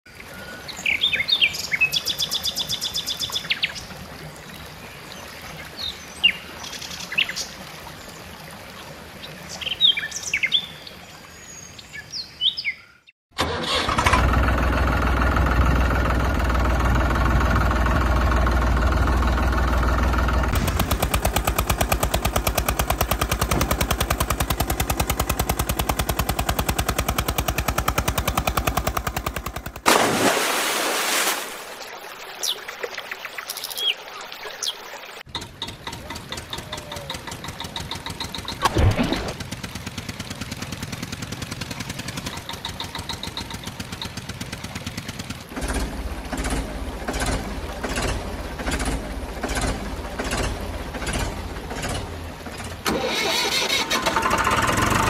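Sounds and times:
birds chirping: 0.1s - 3.9s, 9.2s - 13.1s, 31.7s - 38.6s
tractor engine chugging: 13.4s - 29.9s, 35.3s - 38.7s, 39.3s - 55.0s.

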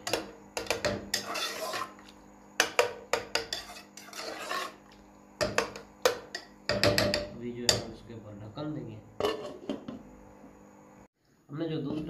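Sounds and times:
metal spoon scraping a pot: 0.0s - 7.8s, 9.2s - 9.8s.

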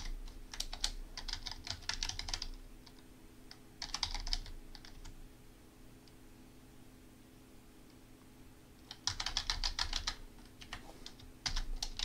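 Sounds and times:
typing on computer keyboard: 0.0s - 5.2s, 8.8s - 12.0s.

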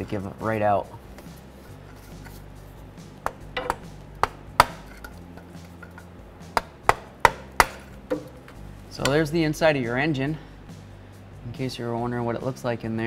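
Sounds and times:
hammer tapping steel pry bar: 3.2s - 9.3s.

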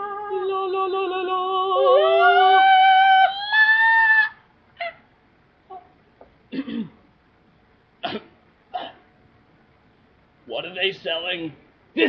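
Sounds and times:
voices holding a sung note: 0.0s - 4.3s
short vocal yelps: 2.2s - 5.1s.

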